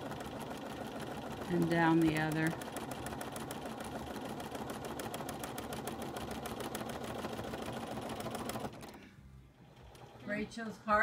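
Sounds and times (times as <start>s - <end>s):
sewing machine needle ticking: 0.0s - 9.0s.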